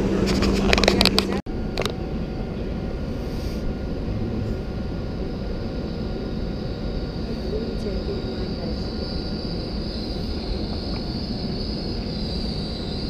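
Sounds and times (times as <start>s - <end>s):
faint steady hum: 0.0s - 13.0s
low rumble: 3.7s - 7.2s.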